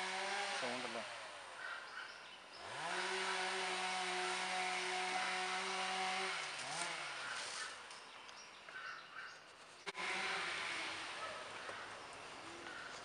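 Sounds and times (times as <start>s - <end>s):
small engine revving: 0.0s - 1.7s, 2.5s - 7.9s, 9.8s - 13.0s.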